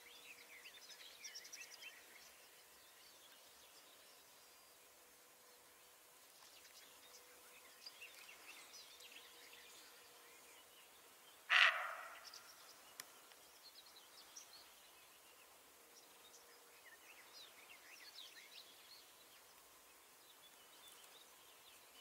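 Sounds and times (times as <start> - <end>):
deer barking: 11.5 - 12.2
faint bird chirps: 11.5 - 14.8.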